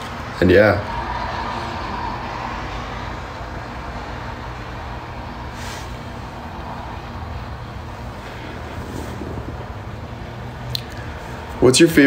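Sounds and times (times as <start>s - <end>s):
low rumble and hum: 0.0s - 11.7s
short breathy hiss: 5.5s - 6.0s.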